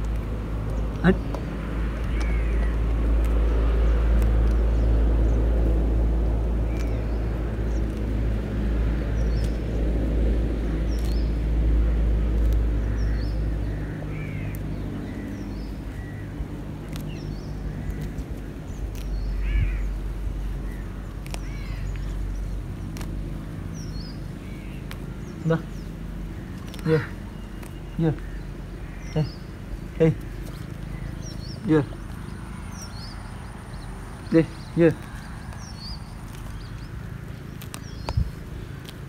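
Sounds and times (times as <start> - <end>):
small birds chirping: 0.0 - 39.0
wind buffeting microphone: 37.6 - 38.9.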